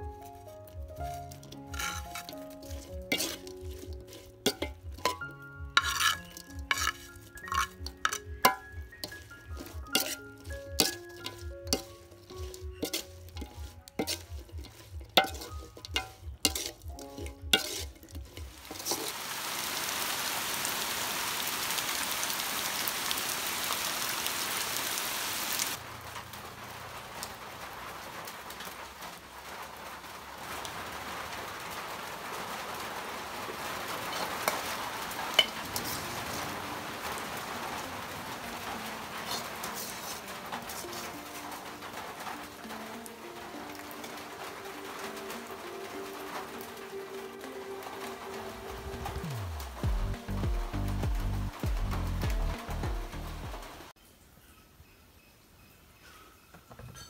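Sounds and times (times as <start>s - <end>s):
utensils clinking: 0.0s - 19.1s, 34.0s - 36.8s, 38.7s - 46.1s
hot oil sizzling: 0.0s - 54.0s.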